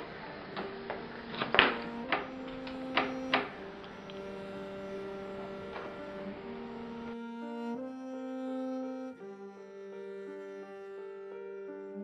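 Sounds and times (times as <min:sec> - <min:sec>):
low drone of held tones: 0:00.0 - 0:12.0
sharp knocks and clicks: 0:00.6 - 0:04.2.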